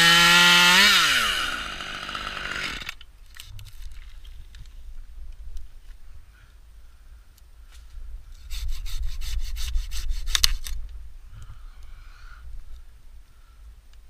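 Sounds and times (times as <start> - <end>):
handsaw cutting branch: 0.0 - 3.0, 8.4 - 10.7.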